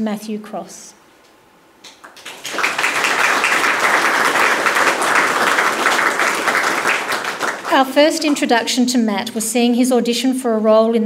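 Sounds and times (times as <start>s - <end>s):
audience applauding: 1.9s - 8.6s.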